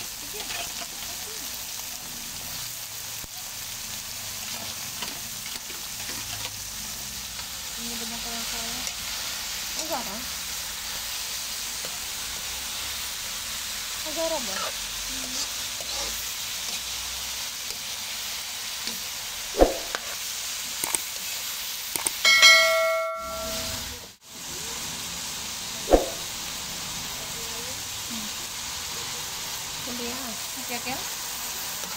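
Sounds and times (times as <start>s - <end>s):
vegetables sizzling in oil: 0.0s - 31.9s
bell-like chime: 22.2s - 23.9s
metal spoon clinking on pan: 22.2s - 23.9s.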